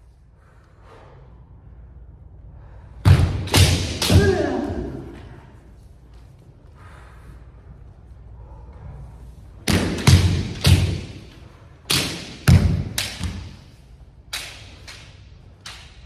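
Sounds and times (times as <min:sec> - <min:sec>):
bamboo swords clacking: 0:03.2 - 0:04.9, 0:09.6 - 0:16.0.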